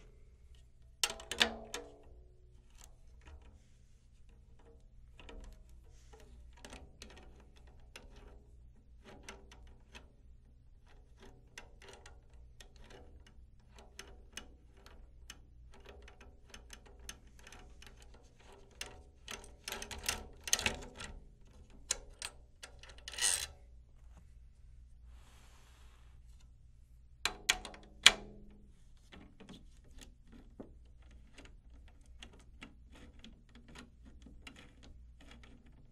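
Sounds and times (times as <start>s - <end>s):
drum key small metallic clicks: 27.3s - 28.6s.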